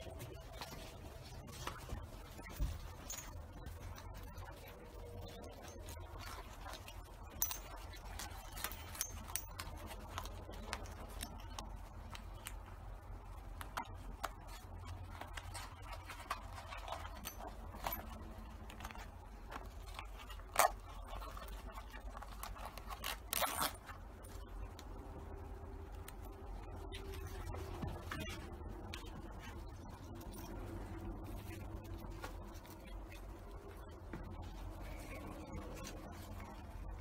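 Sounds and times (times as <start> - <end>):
straps rustling: 0.0 - 25.0
low steady hum: 0.0 - 37.0.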